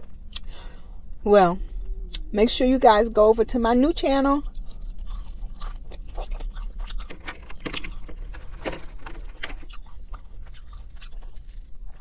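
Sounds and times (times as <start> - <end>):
crunchy chewing: 4.4 - 12.0.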